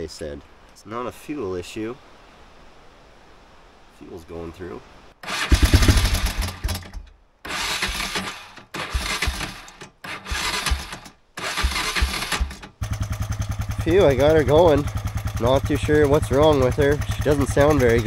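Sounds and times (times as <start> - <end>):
engine cranking and firing unevenly: 5.2 - 18.0.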